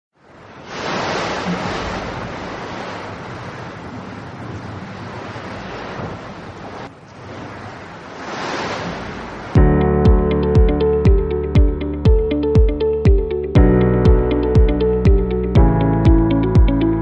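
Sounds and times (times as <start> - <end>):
wind: 0.1 - 9.6
surf: 0.2 - 17.0.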